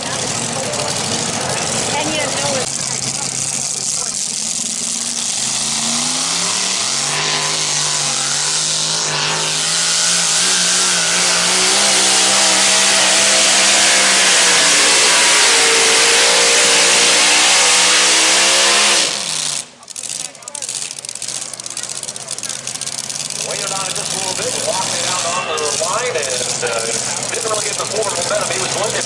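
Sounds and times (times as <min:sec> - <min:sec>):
tractor engine at full throttle: 0:00.0 - 0:29.0.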